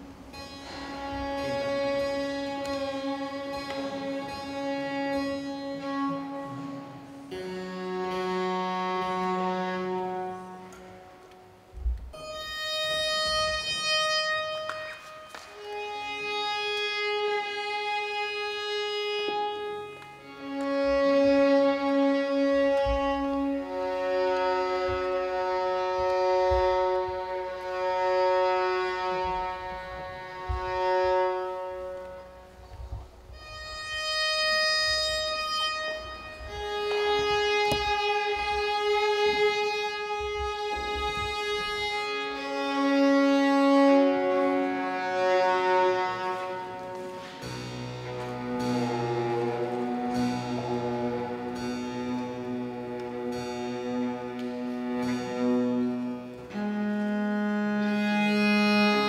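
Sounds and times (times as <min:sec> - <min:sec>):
bowed strings holding long notes: 0:00.0 - 0:59.0.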